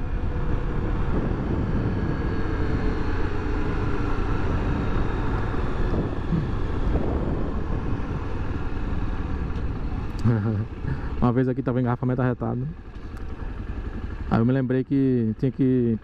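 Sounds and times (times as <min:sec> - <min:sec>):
wind rushing over microphone: 0:00.0 - 0:10.2
motorcycle engine running: 0:00.0 - 0:16.0
road noise: 0:00.0 - 0:16.0.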